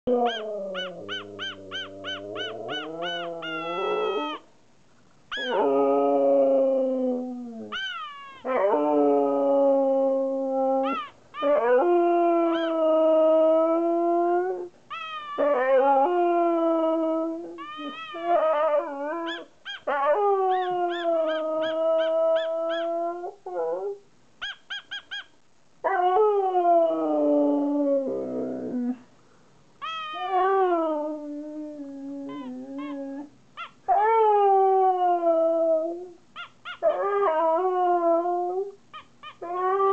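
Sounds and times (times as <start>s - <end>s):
dog howling: 0.1s - 4.4s, 5.3s - 23.9s, 29.8s - 33.3s
dog yipping: 0.2s - 4.4s, 5.3s - 5.6s, 7.7s - 8.5s, 10.8s - 11.5s, 14.9s - 15.5s, 17.6s - 18.5s, 19.2s - 22.9s, 24.4s - 25.3s, 29.8s - 30.4s, 32.3s - 33.0s, 33.6s - 33.8s, 36.4s - 37.0s, 38.9s - 39.4s.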